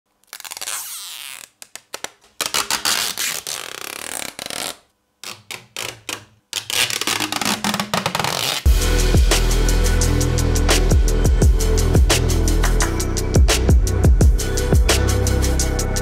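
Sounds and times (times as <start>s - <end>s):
plastic film peeling: 0.2s - 8.7s.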